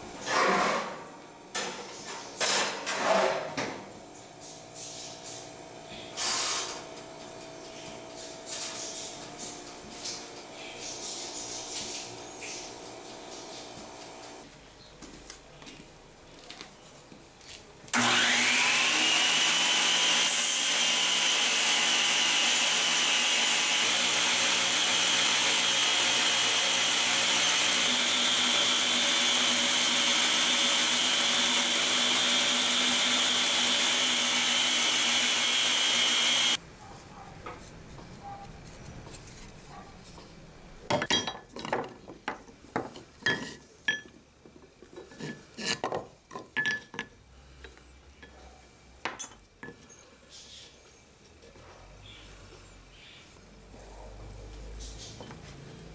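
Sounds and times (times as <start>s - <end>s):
belt grinder grinding: 18.0s - 36.6s.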